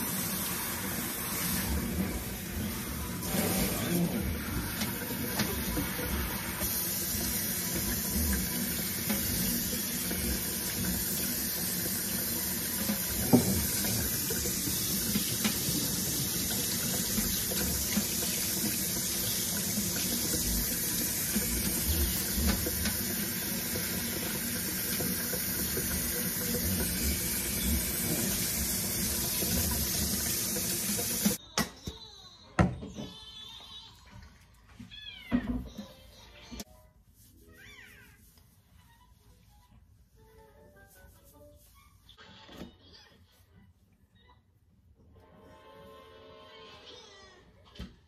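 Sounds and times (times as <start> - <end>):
sprayer water running into sink: 0.0 - 31.4.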